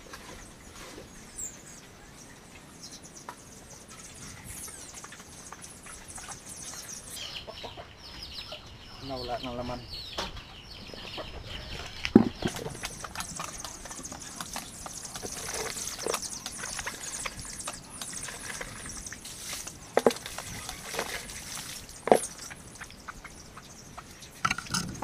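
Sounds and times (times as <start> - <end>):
bucket knocking and clattering: 12.0 - 17.3, 18.2 - 22.6
water splashing: 12.2 - 25.0.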